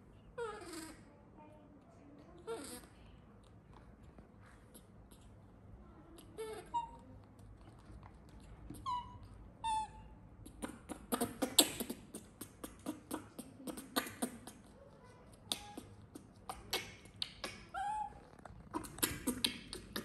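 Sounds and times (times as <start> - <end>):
baby macaque squeaking: 0.4 - 1.1, 2.4 - 3.0, 6.2 - 7.1, 8.3 - 20.0.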